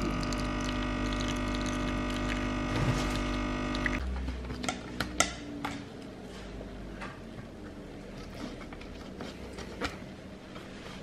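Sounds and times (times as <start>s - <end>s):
espresso machine pump humming: 0.0s - 4.0s.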